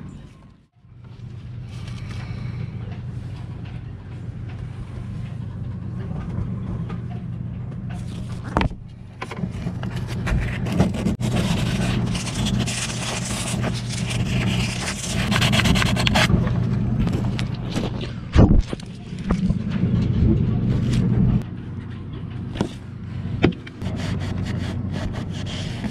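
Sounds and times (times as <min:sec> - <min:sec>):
steady low hum: 0:00.0 - 0:25.9
sandpaper rasping by hand: 0:10.5 - 0:16.3, 0:23.8 - 0:25.9.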